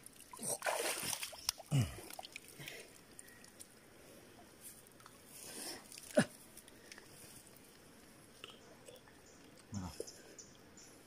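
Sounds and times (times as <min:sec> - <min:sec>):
water splashing and sloshing: 0:00.0 - 0:03.7.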